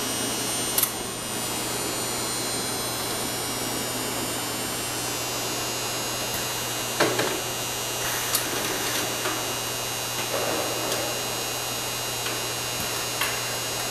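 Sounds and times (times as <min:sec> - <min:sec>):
steady electrical hum: 0:00.0 - 0:13.9
machinery clicks and clanks: 0:06.2 - 0:13.9.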